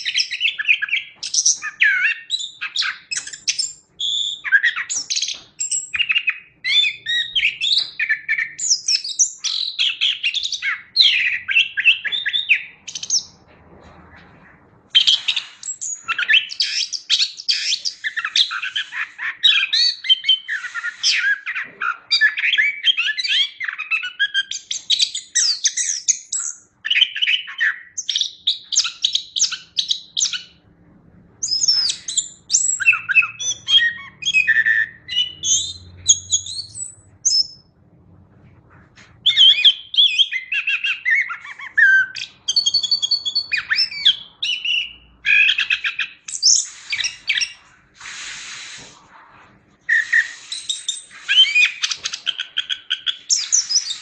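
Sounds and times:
thrush singing chirps and trills: 0:31.4 - 0:37.8, 0:38.6 - 0:54.0.

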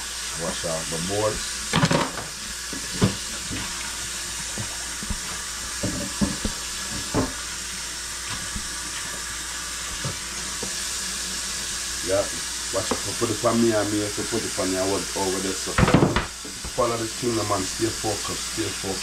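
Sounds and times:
tap running into metal sink: 0:01.7 - 0:07.5, 0:08.3 - 0:10.8, 0:12.8 - 0:13.2
cutting boards knocking: 0:04.5 - 0:07.4, 0:15.8 - 0:16.8.

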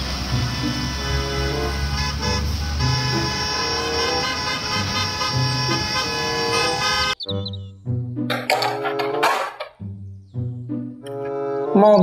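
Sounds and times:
bus horns honking: 0:00.0 - 0:07.6
background music: 0:00.0 - 0:12.0.

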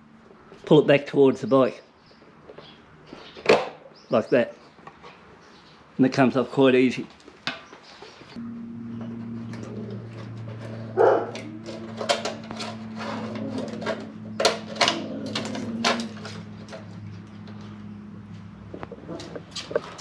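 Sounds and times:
steady low hum: 0:08.4 - 0:14.5.

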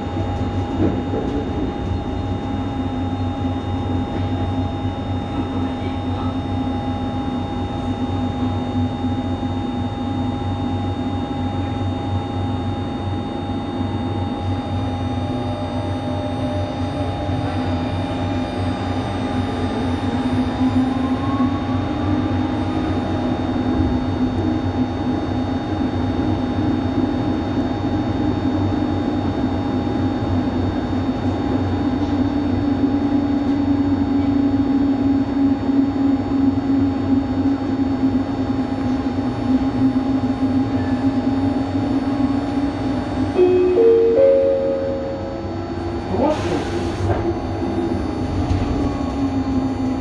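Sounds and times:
train rumbling through tunnel: 0:00.0 - 0:50.0
low hum: 0:34.7 - 0:46.4.

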